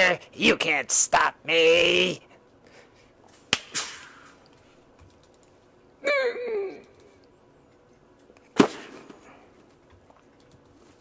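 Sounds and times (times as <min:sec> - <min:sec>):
vocal cry falling in pitch: 0:06.0 - 0:07.0.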